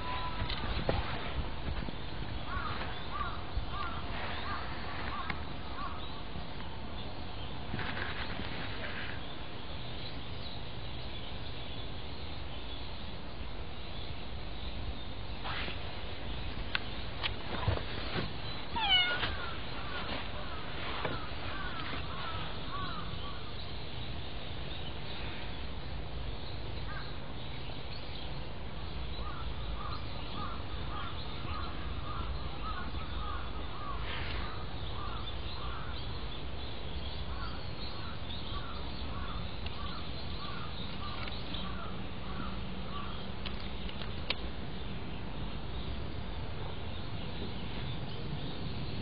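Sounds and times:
outdoor background hiss: 0.0 - 49.0
short animal calls: 18.7 - 19.6.

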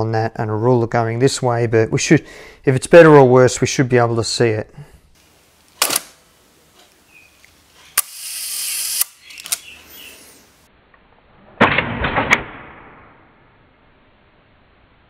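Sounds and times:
camera shutter clicks: 8.0 - 9.7.

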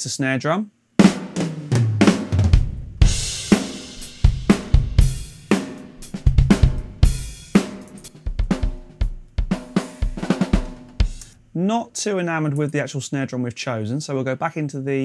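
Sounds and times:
drum kit playing a beat: 1.0 - 11.4.

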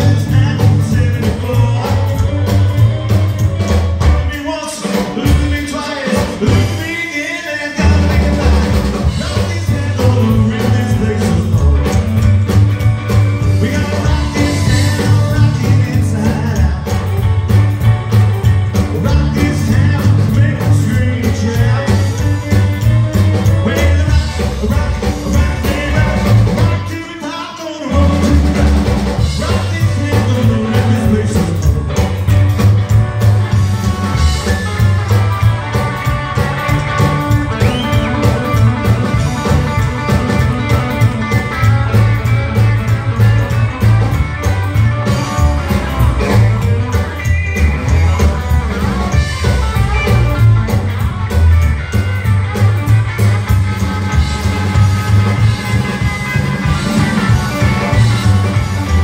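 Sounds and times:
man singing: 0.0 - 2.9, 4.1 - 17.6, 18.6 - 32.4, 36.0 - 50.2
rockabilly band playing: 0.0 - 59.0.

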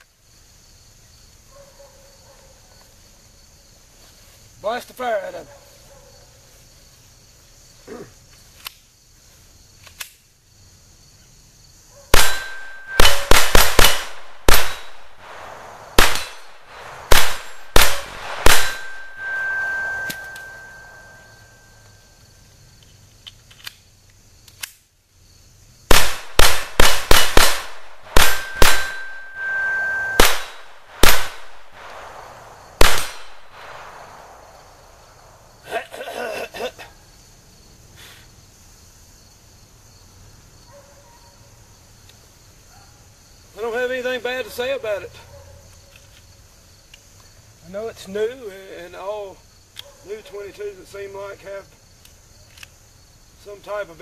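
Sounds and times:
pistol shots: 12.1 - 21.1, 25.9 - 34.5
steel target ringing: 12.2 - 15.0, 16.0 - 21.8, 28.1 - 31.4.

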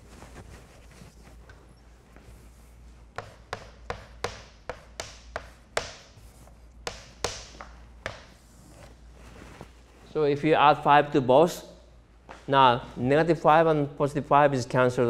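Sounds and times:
chalk tapping and scratching board: 3.0 - 8.9.

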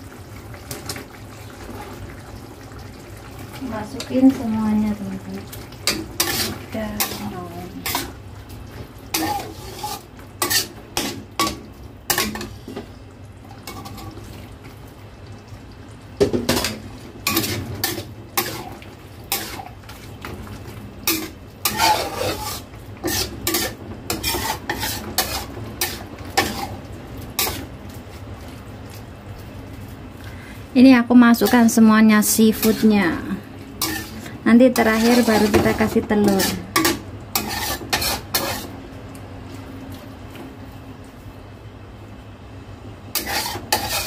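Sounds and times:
metal spatula scraping a wok: 5.8 - 8.2, 9.1 - 12.8, 16.5 - 20.0, 21.0 - 27.7, 31.4 - 33.2, 33.8 - 38.8, 43.1 - 44.0.

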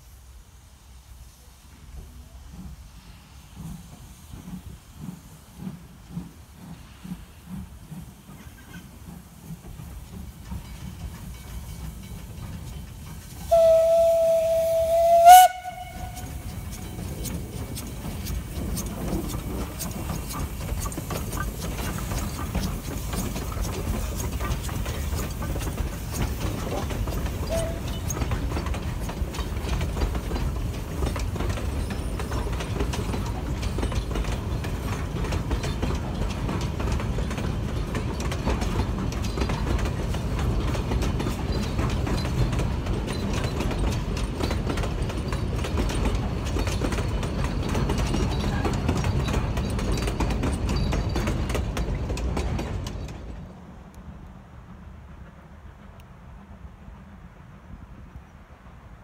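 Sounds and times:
train wheels rumbling and clattering: 0.0 - 59.0
steam locomotive whistle: 13.4 - 16.6, 27.4 - 28.0.

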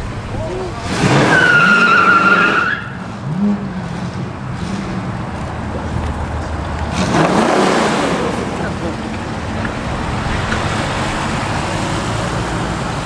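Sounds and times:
car engine blipping and running: 0.0 - 13.0
car high-pitched squeal: 0.9 - 3.7.

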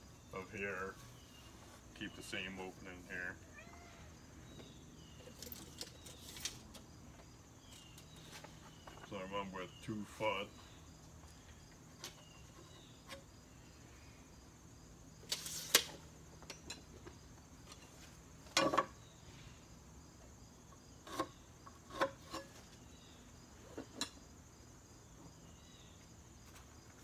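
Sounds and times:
crickets chirping: 0.0 - 27.0
hands and tools on wood: 21.0 - 22.8.

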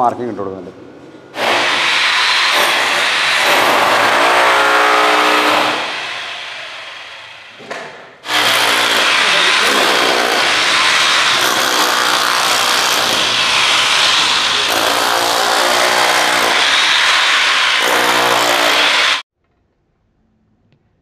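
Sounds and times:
rotary hammer breaking concrete: 1.4 - 5.9, 8.2 - 16.7.

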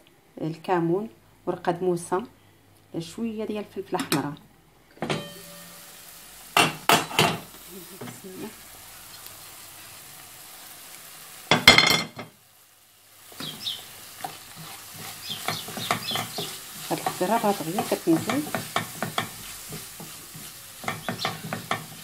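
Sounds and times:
vegetables sizzling in a pan: 5.0 - 22.0
clattering stirring: 13.4 - 22.0.

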